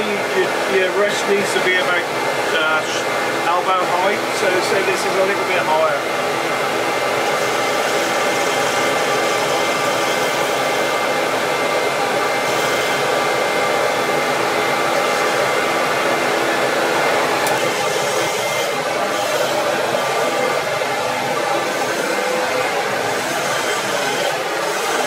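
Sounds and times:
dust extractor drone: 0:00.0 - 0:25.0
wood lathe turning: 0:06.5 - 0:25.0
turning tool cutting wood: 0:07.1 - 0:11.0, 0:12.4 - 0:13.2, 0:17.4 - 0:20.7, 0:23.0 - 0:25.0.

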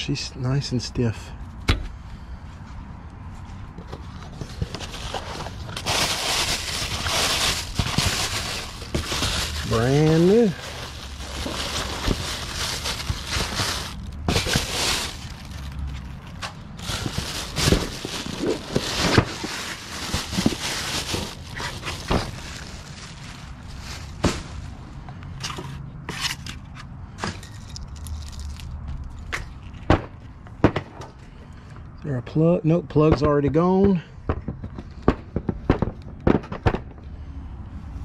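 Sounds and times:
plastic bag crinkling: 0:04.8 - 0:24.2.

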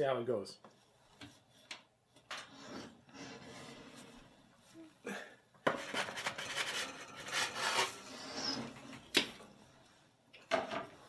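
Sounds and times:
wooden peel scraping on metal: 0:05.7 - 0:08.9.

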